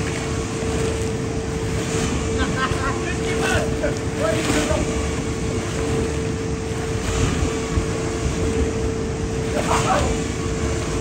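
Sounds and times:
faint steady hum: 0.0s - 11.0s
waves rushing and splashing: 0.0s - 11.0s.

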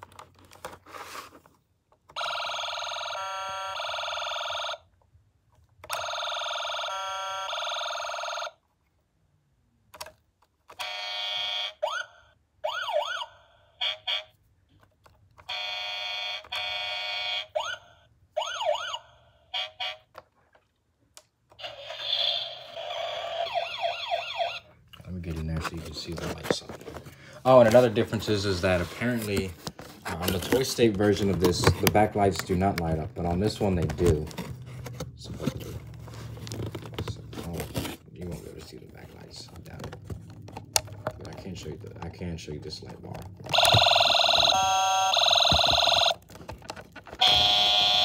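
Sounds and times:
toy siren wailing: 2.2s - 4.8s, 5.9s - 8.4s, 10.8s - 14.3s, 15.5s - 20.1s, 21.6s - 24.7s, 43.5s - 46.2s, 47.1s - 48.0s.

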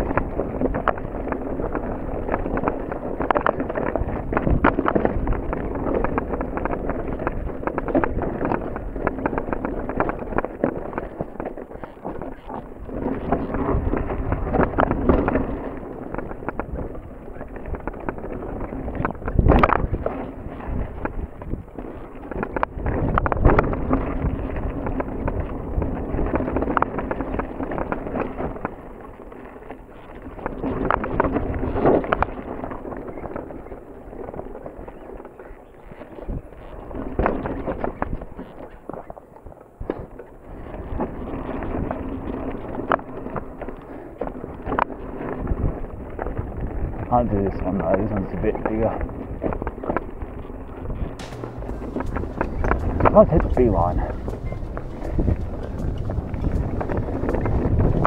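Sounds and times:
bike rattling: 0.0s - 35.2s, 36.5s - 58.0s
bike tyres rolling over stones: 0.0s - 58.0s
wind on microphone: 0.0s - 58.0s
bike frame and chain rattling: 48.0s - 58.0s.

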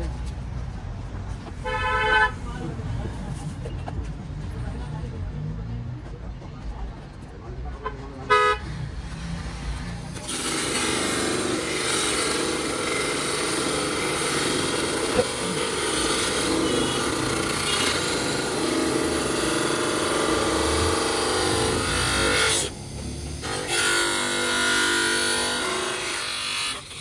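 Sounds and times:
buffing motor whirring: 10.2s - 27.0s.

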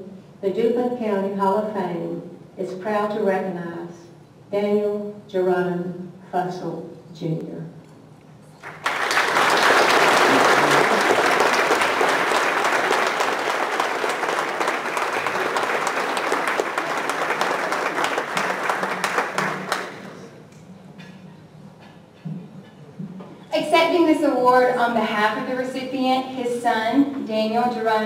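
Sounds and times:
audience applauding: 8.6s - 20.3s.

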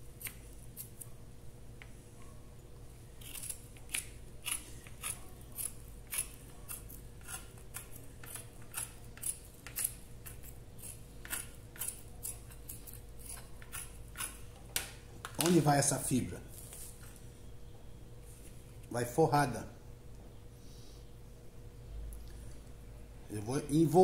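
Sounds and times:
scissors snipping: 0.2s - 1.1s, 3.2s - 14.4s.

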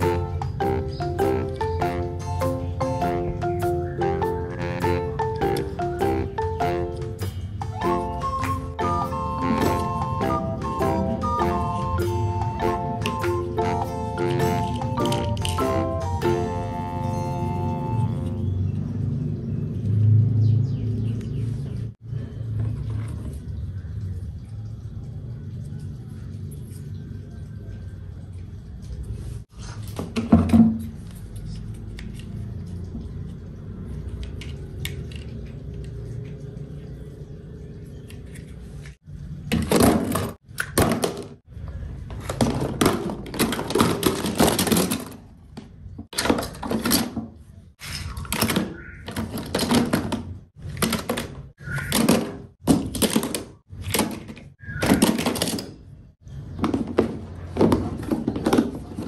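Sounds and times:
toy cars clattering into plastic box: 42.2s - 45.4s, 46.1s - 51.4s, 52.0s - 55.8s.

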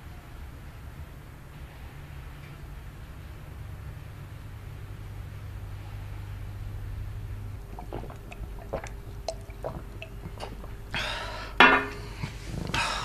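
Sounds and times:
person sipping from mug: 7.6s - 13.0s.

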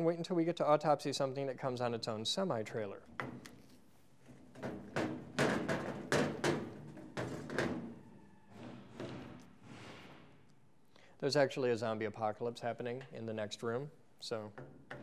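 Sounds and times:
thumps and bangs from doors: 4.4s - 10.4s.

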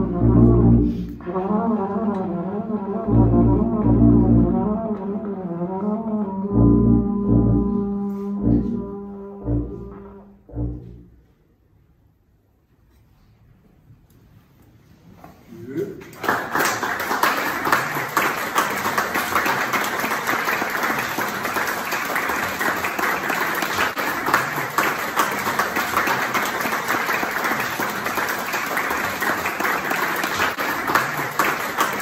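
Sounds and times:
audience applauding: 16.1s - 32.0s.

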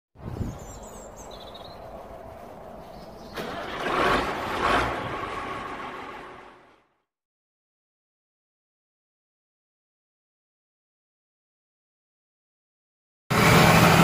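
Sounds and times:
engine revving: 3.1s - 7.0s, 13.3s - 14.0s.

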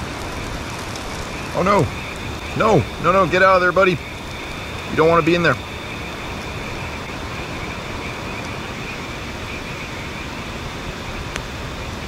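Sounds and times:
rushing outdoor ambience: 0.0s - 12.0s.

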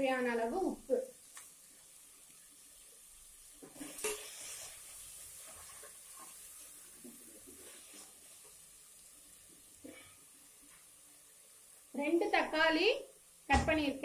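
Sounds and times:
onions sizzling in oil: 0.0s - 14.0s
metal spatula scraping pot: 3.6s - 6.7s.

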